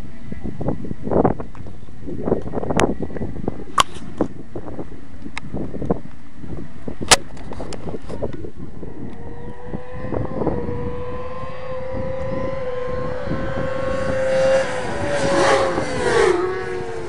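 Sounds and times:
wind buffeting microphone: 0.0 - 17.0
racing motorcycle engine revving: 8.8 - 17.0.

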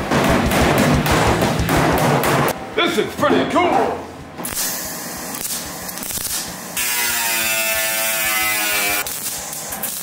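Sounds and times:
welder arc buzzing: 4.5 - 10.0.

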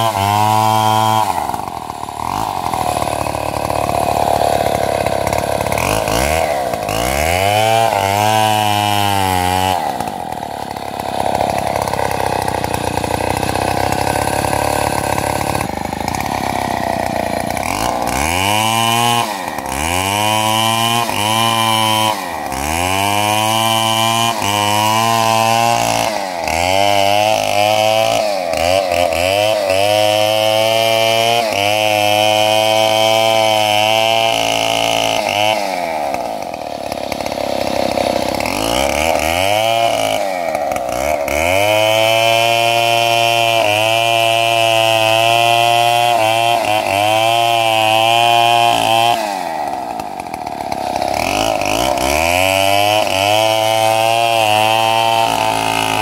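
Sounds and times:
chainsaw running: 0.0 - 56.0.

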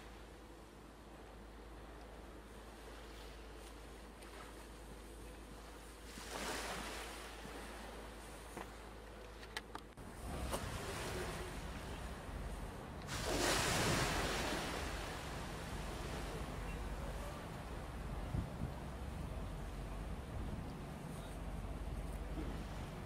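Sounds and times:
waves washing up slipway: 5.9 - 8.5, 10.0 - 23.0.

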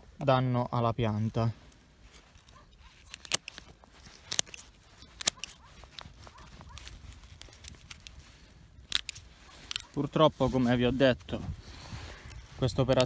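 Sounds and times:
pruning shears snipping: 2.1 - 10.2.

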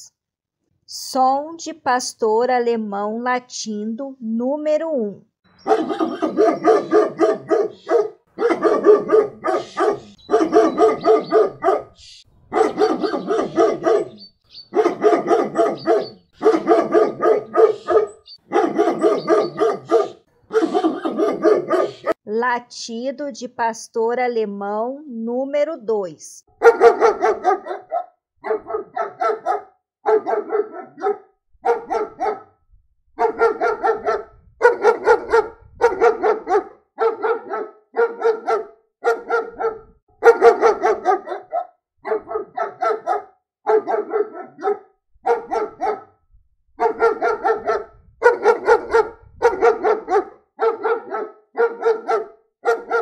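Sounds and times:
dog barking: 5.6 - 22.2, 26.5 - 32.6, 33.2 - 46.2, 46.8 - 53.0.

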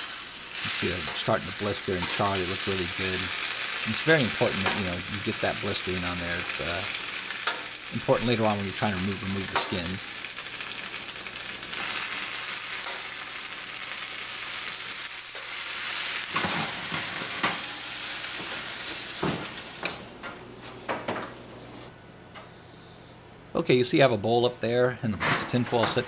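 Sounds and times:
chilies sizzling under broiler: 0.0 - 19.9.

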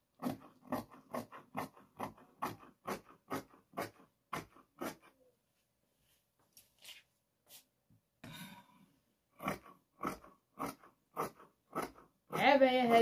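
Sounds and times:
shears snipping fabric: 0.2 - 5.2.

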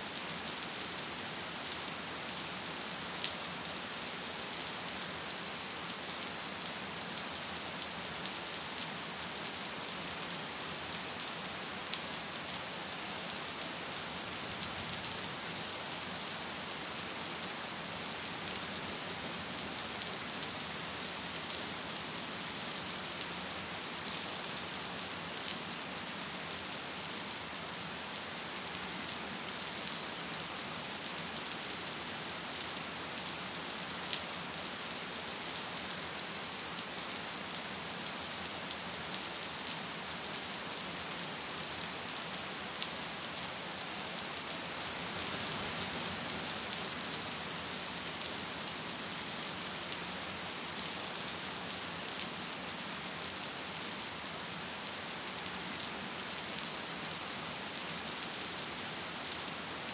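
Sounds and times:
gentle rain hiss: 0.0 - 59.9.

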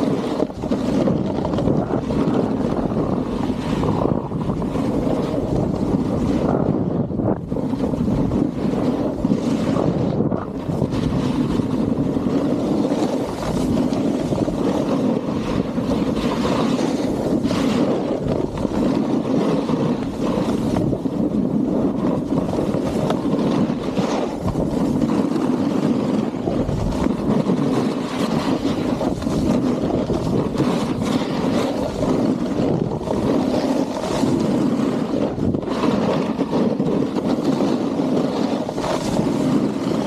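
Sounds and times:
snowboard scraping over snow: 0.0 - 40.0
wind on microphone: 0.0 - 40.0.

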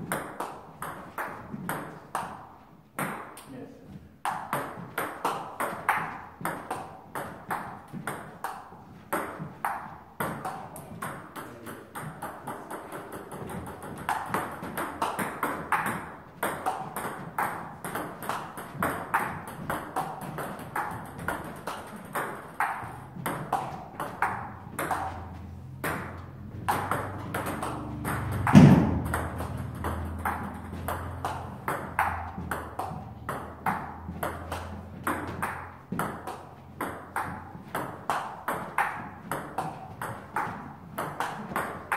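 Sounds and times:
table tennis ball clicking: 11.4 - 41.9
loud thump: 28.4 - 29.3.

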